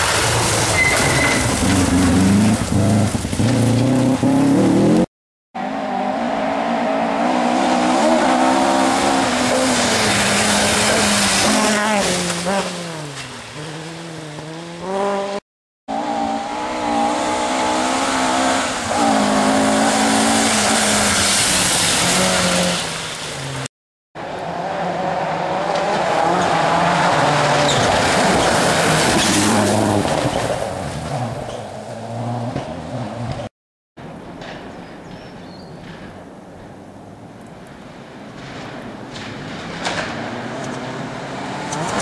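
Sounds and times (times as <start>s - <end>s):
gravel hissing from tyres: 0.0s - 4.4s
rally car engine at full throttle: 0.0s - 33.5s, 39.5s - 42.0s.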